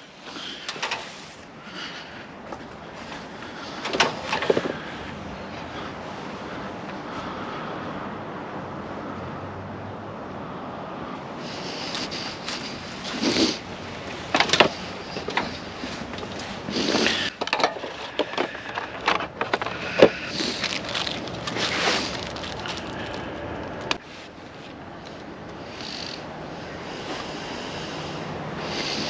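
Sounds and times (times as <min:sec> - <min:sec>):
hands handling plastic hardware: 0:14.3 - 0:24.0.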